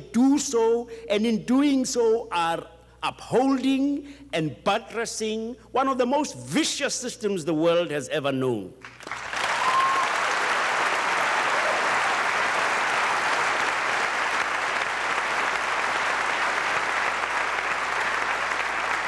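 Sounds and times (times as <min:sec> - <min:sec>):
audience applauding: 0:08.8 - 0:19.0.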